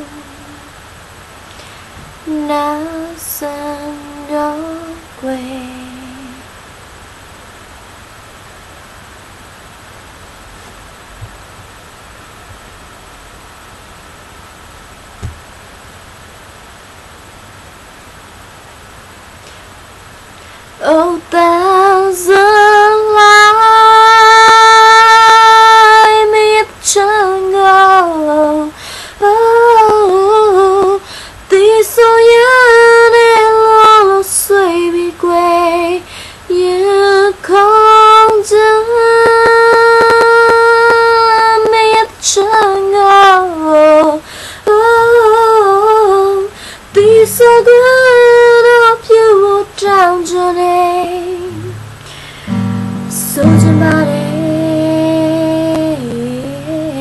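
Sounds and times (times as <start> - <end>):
woman singing unaccompanied: 0.0 - 0.8, 2.2 - 6.6, 20.8 - 57.0
low steady tone: 51.5 - 57.0.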